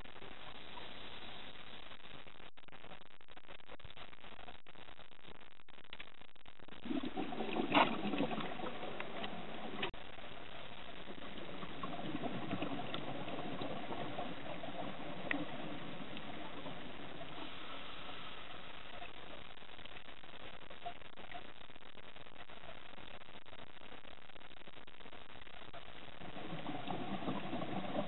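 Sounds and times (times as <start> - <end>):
air bubbles from regulator: 6.8 - 9.9
steady underwater hiss: 10.6 - 19.4.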